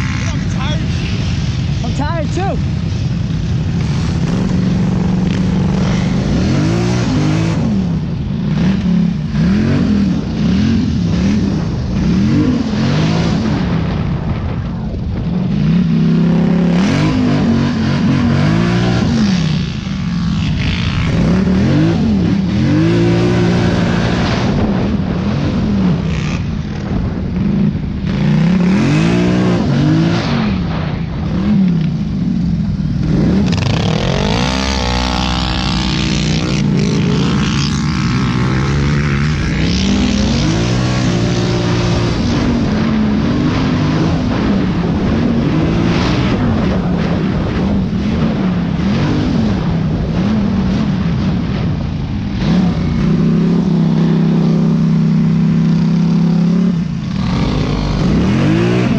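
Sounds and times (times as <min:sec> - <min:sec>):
quad bike engine revving: 0:00.0 - 0:14.6, 0:15.2 - 0:58.9
wind noise rushing: 0:00.0 - 0:58.9.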